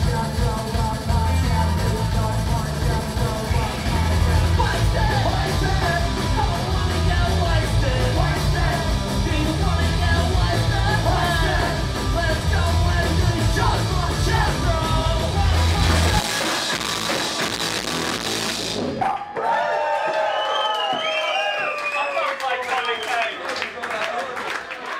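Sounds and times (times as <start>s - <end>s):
distorted electric guitar: 0.0s - 19.0s
drums: 0.0s - 19.6s
yelled vocals: 0.0s - 19.6s.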